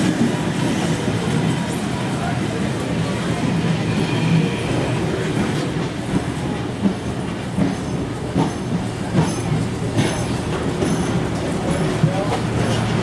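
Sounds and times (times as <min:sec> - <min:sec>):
train rumble: 0:00.0 - 0:13.0
train wheels clacking on rail joints: 0:04.3 - 0:13.0.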